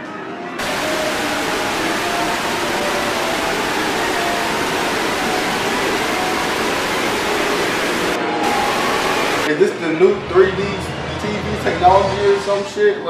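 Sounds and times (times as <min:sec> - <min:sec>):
faint steady tones: 0:00.6 - 0:09.5
television static hiss: 0:00.6 - 0:09.5.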